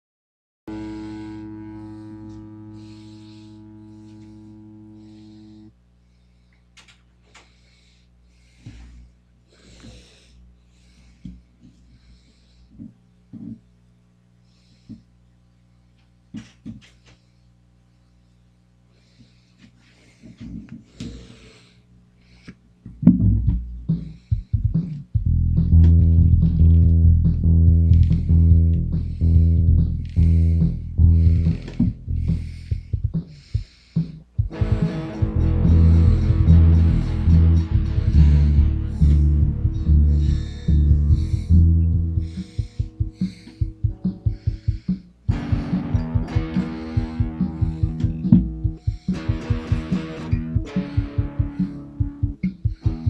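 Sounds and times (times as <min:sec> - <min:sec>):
electric guitar chord strummed: 0:00.7 - 0:05.7, 0:34.5 - 0:43.2, 0:45.3 - 0:53.0
amplifier hum: 0:00.7 - 0:53.0.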